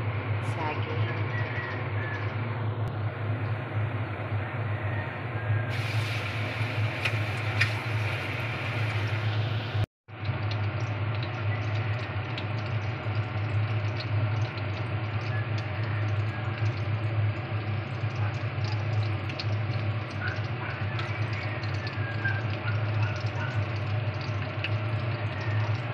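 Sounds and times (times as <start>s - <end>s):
steady low hum: 0.0s - 21.8s
banana strips sizzling in oil: 5.7s - 25.9s.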